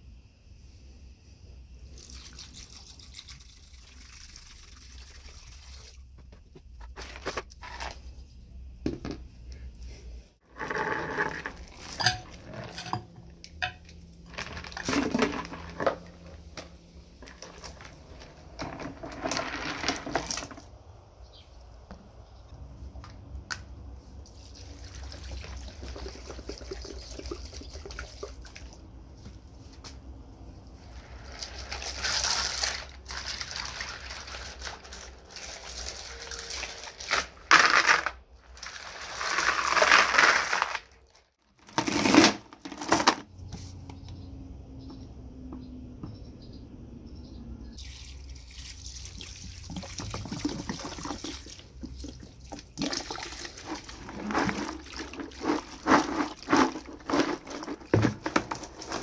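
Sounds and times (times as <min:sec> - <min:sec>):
liquid pouring over chain: 0:02.0 - 0:06.0, 0:24.5 - 0:28.6, 0:31.2 - 0:37.2, 0:47.8 - 0:57.8
water splashing and sloshing: 0:47.8 - 0:59.0.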